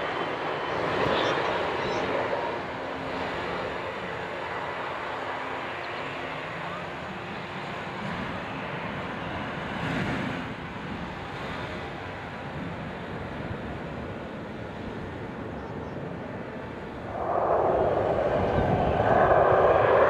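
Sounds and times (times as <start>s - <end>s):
jet aircraft noise: 0.0s - 20.0s
wind on microphone: 15.1s - 20.0s.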